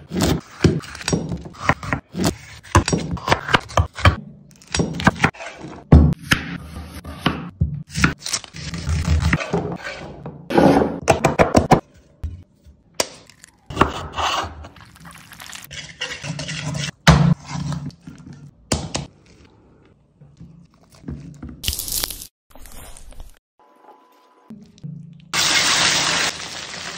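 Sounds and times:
vegetables scraping and crunching: 20.6s - 24.8s.

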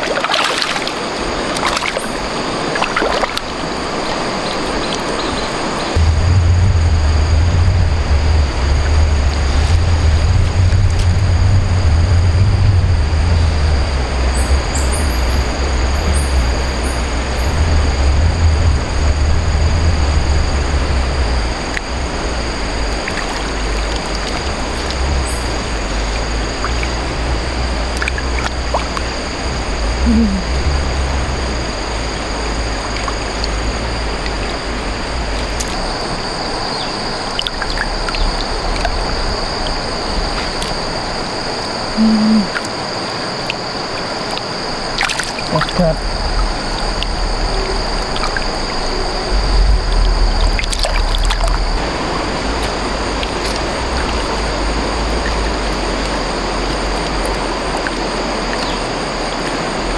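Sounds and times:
stream water running: 0.0s - 59.9s
steady high-pitched tone: 4.8s - 43.7s
low rumble: 5.8s - 42.6s, 44.7s - 59.9s.

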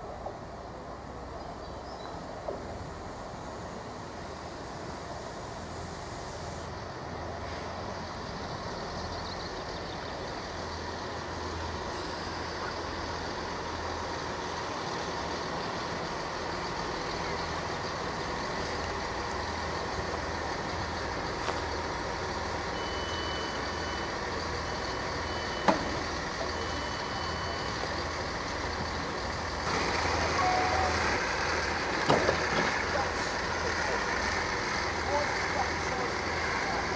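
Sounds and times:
diesel train engine idling: 0.0s - 36.9s
short high beeps: 22.8s - 24.1s, 30.4s - 31.0s.

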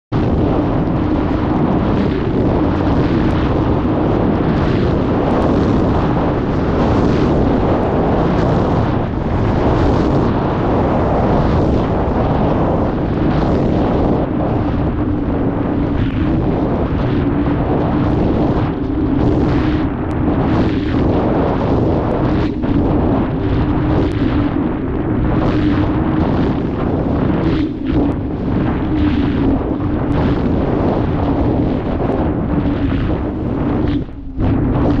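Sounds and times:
wind rushing over microphone: 0.1s - 35.0s.

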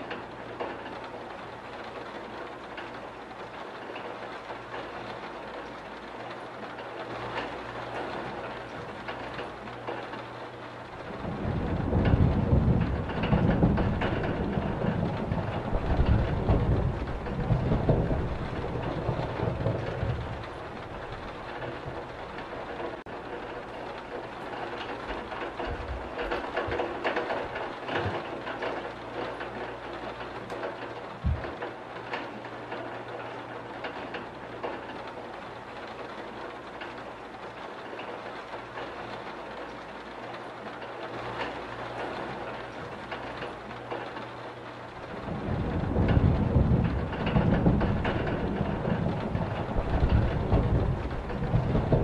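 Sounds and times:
steady rain falling: 0.0s - 52.0s
thunder rumbles: 6.5s - 52.0s.

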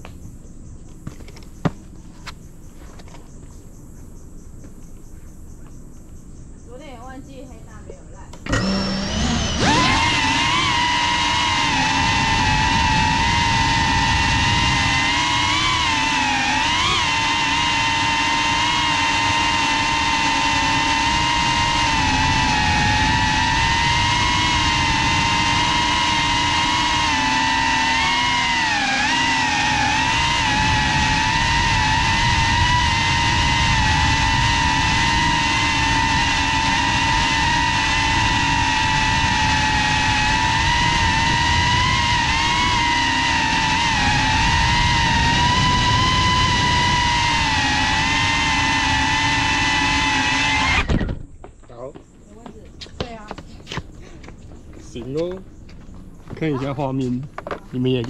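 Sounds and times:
drone motors whining: 0.0s - 51.5s, 52.2s - 58.0s
propeller wash rushing: 8.4s - 50.8s.

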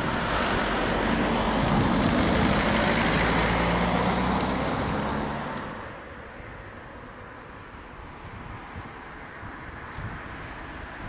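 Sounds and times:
car driving past: 0.0s - 5.9s.

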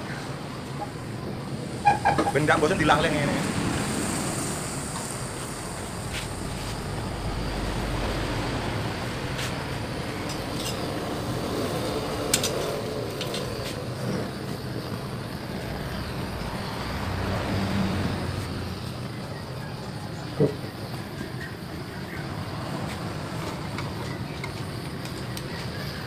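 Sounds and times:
gas torch flame rushing: 1.6s - 19.2s
metal scrapers scraping: 8.7s - 14.3s.

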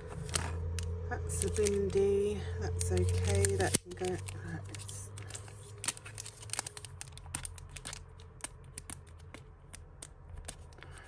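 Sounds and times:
plastic packet being handled: 0.0s - 11.0s
jewellery clicking and tapping: 7.0s - 11.0s.

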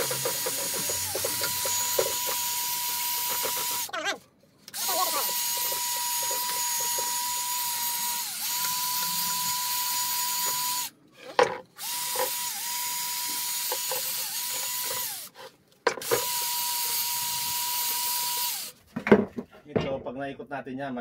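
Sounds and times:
drill wire brush whining: 0.0s - 3.9s, 4.7s - 10.9s, 11.8s - 15.4s, 16.0s - 18.8s.

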